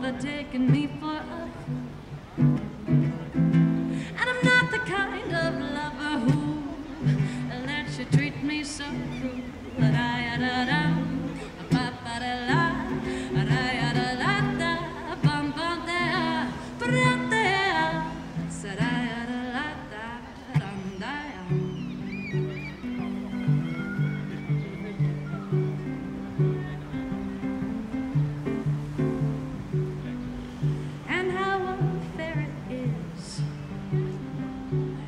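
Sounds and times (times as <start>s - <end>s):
woman singing: 0.0s - 2.0s, 2.9s - 22.2s, 30.7s - 35.0s
strummed ukulele chords: 0.0s - 35.0s.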